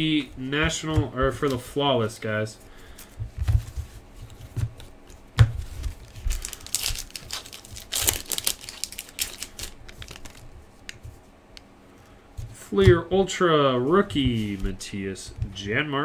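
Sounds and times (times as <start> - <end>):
foil wrapper tearing and crinkling: 5.9 - 10.9.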